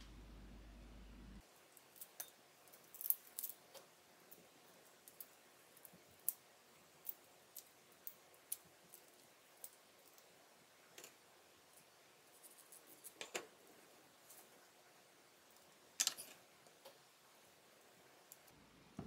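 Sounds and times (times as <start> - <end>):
small objects clicking and tapping: 1.7 - 6.4, 7.0 - 10.3, 15.6 - 17.0.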